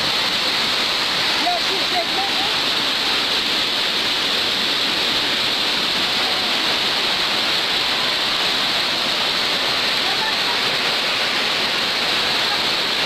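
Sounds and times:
floodwater rushing: 0:00.0 - 0:13.0.

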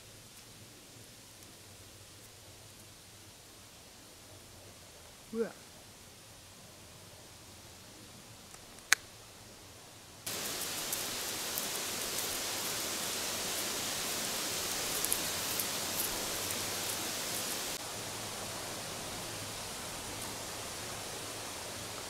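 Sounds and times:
steady hiss: 0:00.0 - 0:22.0
faint crackles: 0:10.3 - 0:17.8.

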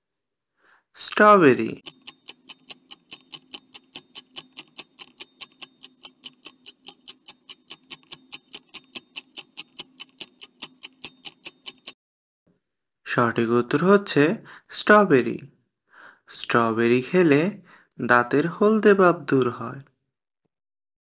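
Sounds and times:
countdown timer ticking: 0:01.8 - 0:12.0.

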